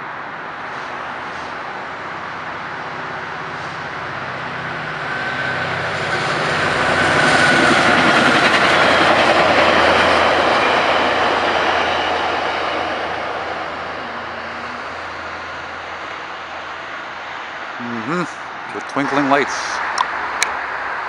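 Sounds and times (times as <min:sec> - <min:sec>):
train passing: 0:00.0 - 0:21.0.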